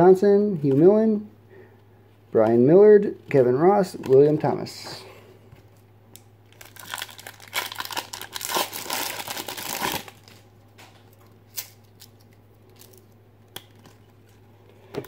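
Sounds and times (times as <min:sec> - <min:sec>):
wrapper tearing and crinkling: 0:06.5 - 0:10.5, 0:11.5 - 0:13.9.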